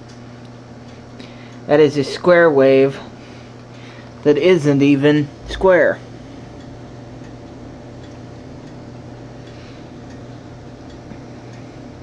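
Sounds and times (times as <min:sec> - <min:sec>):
inverter electrical hum: 0:00.0 - 0:12.0
faint ticks: 0:09.4 - 0:11.7.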